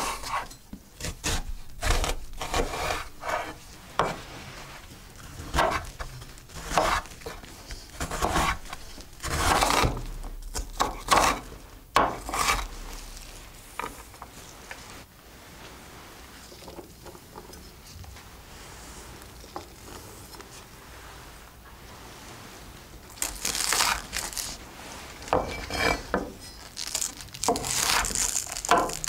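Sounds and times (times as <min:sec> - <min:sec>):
knife scraping board: 0:00.0 - 0:14.0, 0:23.3 - 0:24.6, 0:25.2 - 0:26.3, 0:27.5 - 0:29.0
knife chopping onion on board: 0:05.4 - 0:05.9, 0:06.5 - 0:07.4, 0:08.0 - 0:11.4, 0:12.0 - 0:12.7.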